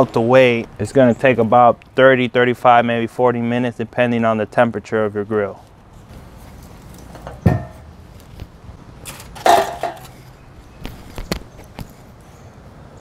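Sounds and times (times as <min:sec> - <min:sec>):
metal grill lid clanking: 0:07.2 - 0:08.0, 0:09.0 - 0:10.2.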